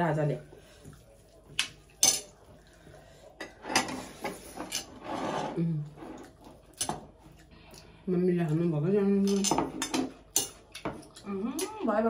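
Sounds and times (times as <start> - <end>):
tableware clinking: 2.0 - 2.3, 3.4 - 5.5, 9.3 - 11.0.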